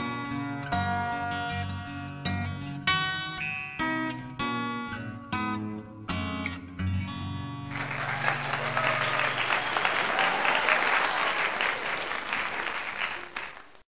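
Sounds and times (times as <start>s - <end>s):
guitar notes: 0.0s - 9.4s
crowd applause: 7.7s - 13.8s.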